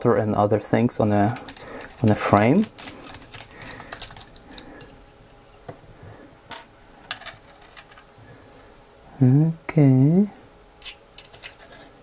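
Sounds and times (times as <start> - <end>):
small parts being handled: 1.1 - 5.8, 6.5 - 8.3, 10.8 - 12.0.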